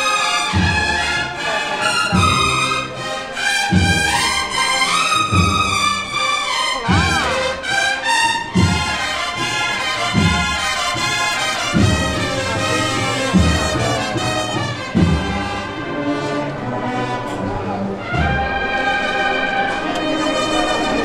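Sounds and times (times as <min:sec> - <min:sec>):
cornets playing march melody: 0:00.0 - 0:21.0
bass drum strokes: 0:08.4 - 0:15.9.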